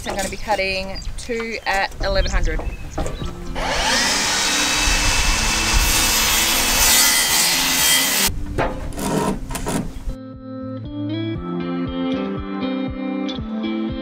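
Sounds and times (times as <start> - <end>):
mitre saw cutting timber: 3.6 - 8.3.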